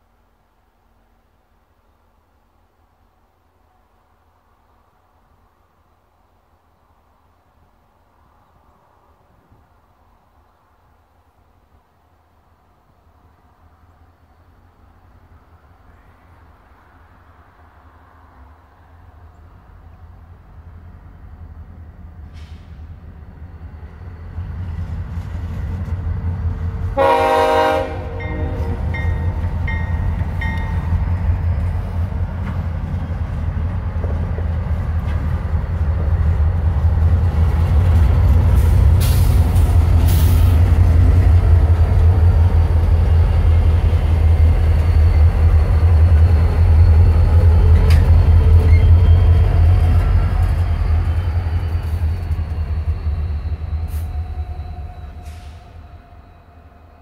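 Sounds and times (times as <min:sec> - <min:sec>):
diesel locomotive engine rumble: 0:00.0 - 0:57.0
train horn blast: 0:26.9 - 0:29.4.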